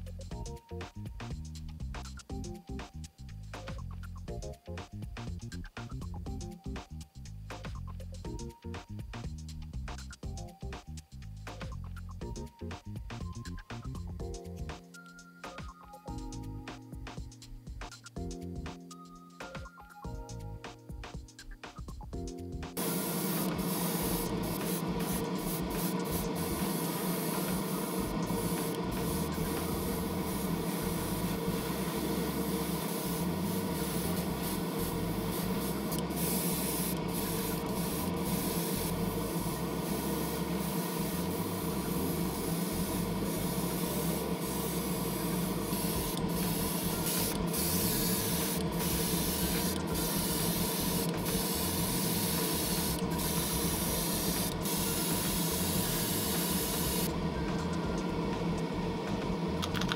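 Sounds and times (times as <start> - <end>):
airbrush spraying hiss: 22.8 - 57.2
motor hum: 22.8 - 59.9.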